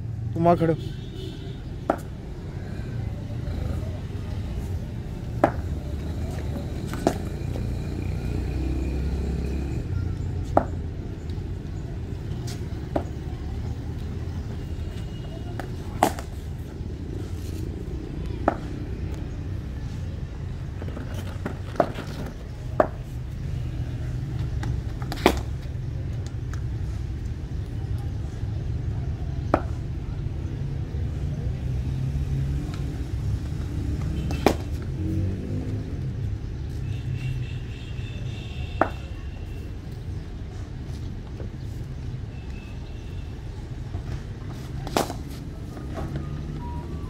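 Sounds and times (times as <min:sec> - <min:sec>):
cricket ball knocks: 0:01.9 - 0:02.1, 0:38.8 - 0:39.0
cricket bat striking ball: 0:05.3 - 0:05.8, 0:15.6 - 0:16.4, 0:25.1 - 0:25.6, 0:34.2 - 0:34.8, 0:38.8 - 0:39.1, 0:44.8 - 0:45.4.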